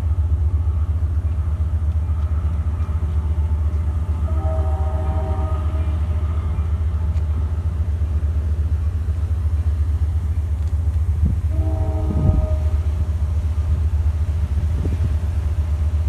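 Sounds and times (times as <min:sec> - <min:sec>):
ferry engines rumbling: 0:00.0 - 0:16.0
wind buffeting microphone: 0:10.3 - 0:15.8.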